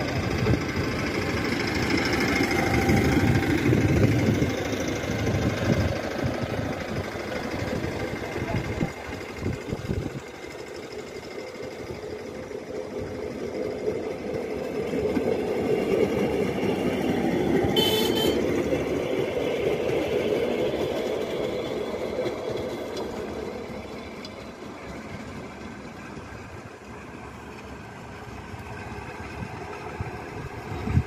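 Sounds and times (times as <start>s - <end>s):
rail trolley engine and wheels: 0.0s - 31.0s
short high-pitched horn toot: 17.8s - 18.4s.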